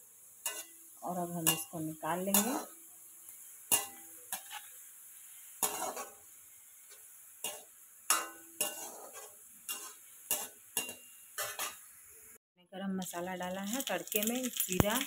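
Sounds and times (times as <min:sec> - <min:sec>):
faint sizzle of frying oil: 0:00.0 - 0:15.0
spatula scraping metal pan: 0:03.7 - 0:04.7, 0:05.6 - 0:06.2, 0:07.4 - 0:11.8.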